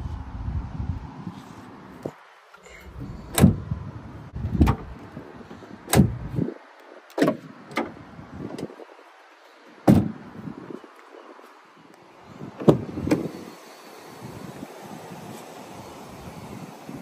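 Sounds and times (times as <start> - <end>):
sharp thumps: 9.9 - 10.2.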